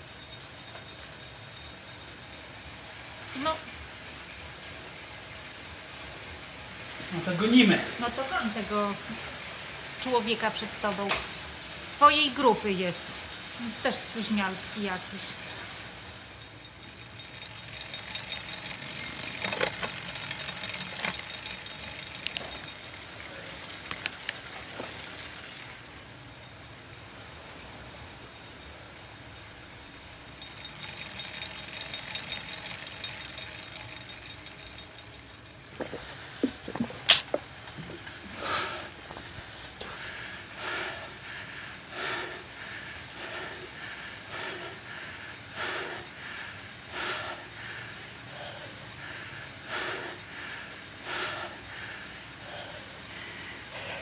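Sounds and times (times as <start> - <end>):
indoor bike trainer whirring: 0.0 - 54.0
heavy rhythmic breathing: 13.1 - 26.0, 29.9 - 54.0.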